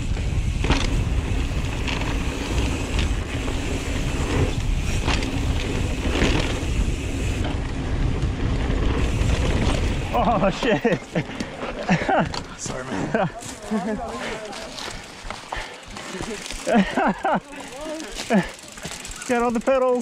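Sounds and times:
wind buffeting microphone: 0.0s - 13.2s
bike rattles and knocks: 0.0s - 20.0s
tyres rumbling on dirt: 0.0s - 20.0s.

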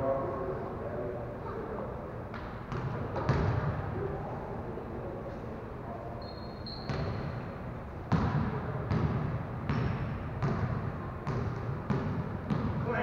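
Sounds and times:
basketballs dribbled on gym floor: 2.3s - 3.7s, 6.8s - 7.3s, 8.1s - 13.0s.

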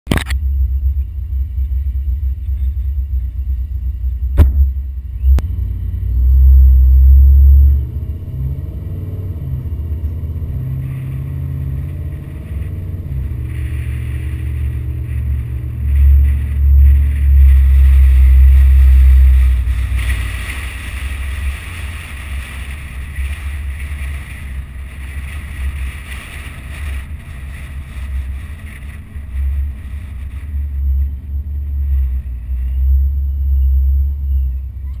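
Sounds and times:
car engine and road rumble: 0.0s - 35.0s
sharp click: 0.1s - 0.4s
wind buffeting microphone: 0.5s - 35.0s.

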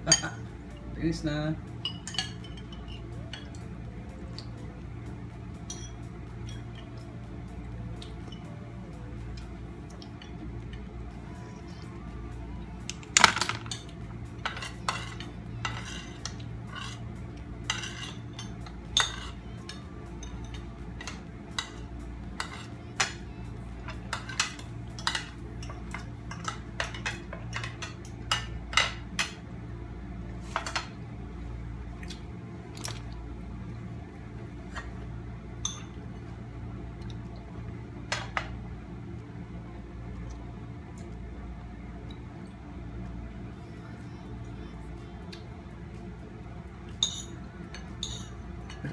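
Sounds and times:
cutlery clinking against bowls: 0.0s - 0.5s, 1.8s - 3.6s, 5.6s - 7.0s, 13.0s - 17.0s, 17.6s - 23.2s, 23.8s - 29.4s, 35.6s - 36.0s, 46.9s - 48.9s
steady low hum: 0.0s - 48.9s.

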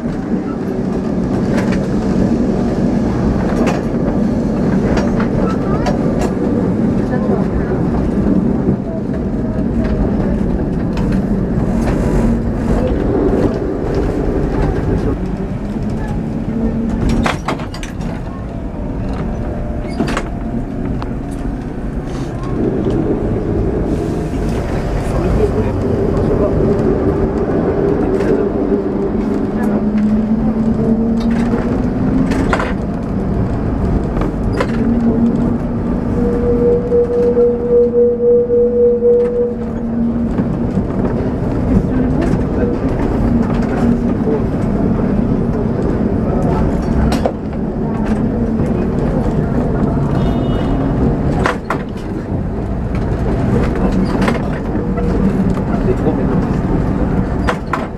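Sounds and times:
tram wheels rumbling on rails: 0.0s - 57.9s
pulsing high tone: 36.1s - 40.0s.

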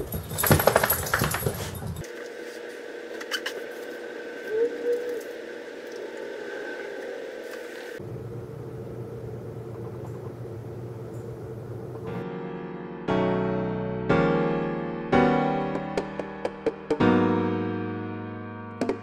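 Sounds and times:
low background hum: 7.8s - 12.2s
electric piano chords: 12.0s - 19.0s.

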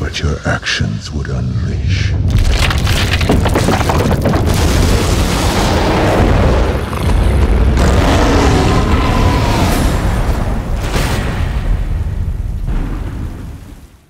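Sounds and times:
deep booming rumble: 1.7s - 13.8s
monster roaring: 4.8s - 10.8s.

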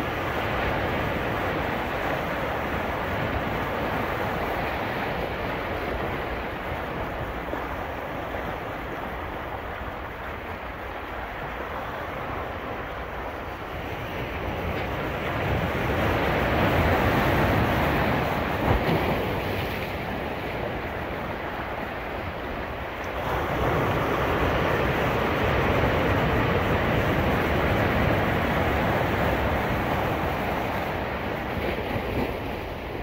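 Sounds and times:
ocean waves washing on beach: 0.0s - 33.0s.

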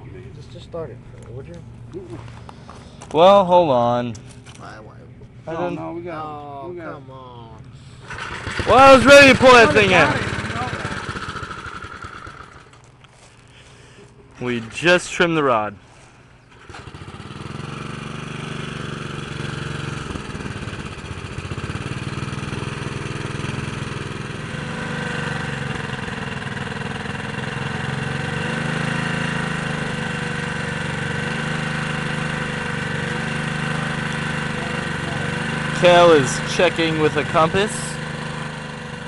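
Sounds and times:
small engine running: 7.8s - 15.1s, 15.9s - 39.0s.

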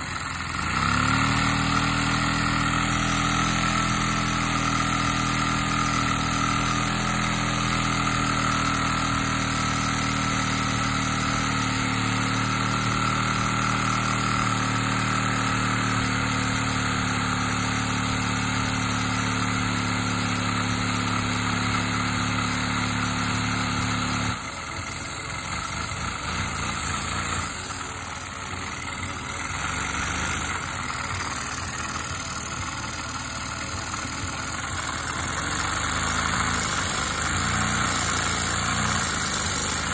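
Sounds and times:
engine mechanical drone: 19.5s - 39.9s.

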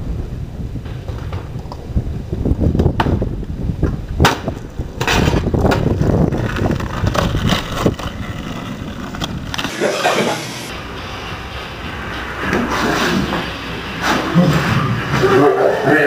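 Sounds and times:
wind on microphone: 0.0s - 9.6s
skateboard wheels rolling on pavement: 0.0s - 15.9s
skateboard clacking on concrete: 3.8s - 9.8s.

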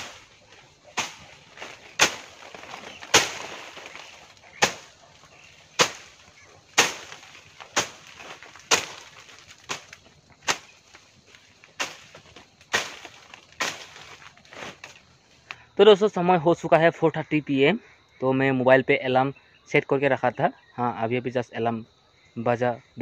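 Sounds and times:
blade chopping woody stems: 0.0s - 15.0s.

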